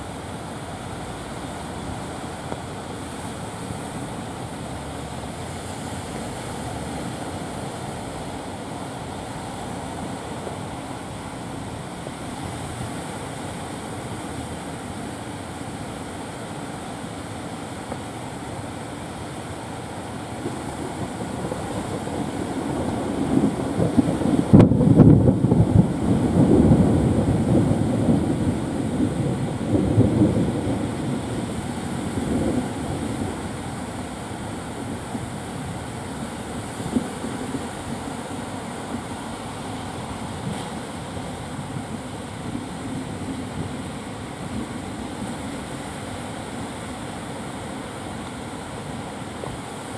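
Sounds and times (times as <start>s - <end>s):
surf washing onto beach: 0.0s - 49.9s
wind buffeting microphone: 19.7s - 47.0s.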